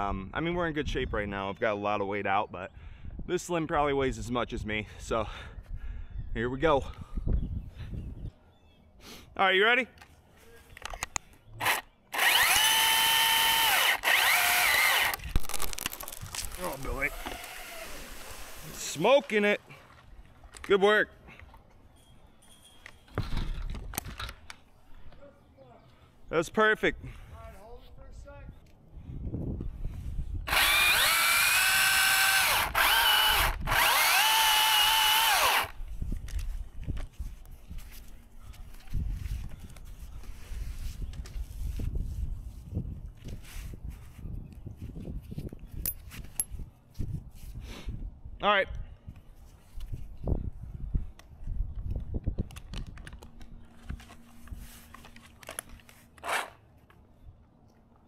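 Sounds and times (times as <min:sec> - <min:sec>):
chainsaw motor whining: 0:11.6 - 0:19.4, 0:30.5 - 0:35.8
rope and climbing gear clicking: 0:51.2 - 0:57.0.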